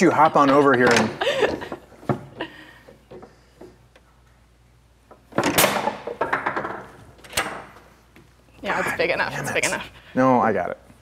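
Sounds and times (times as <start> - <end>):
foosball hard shot thunk: 5.3 - 6.9.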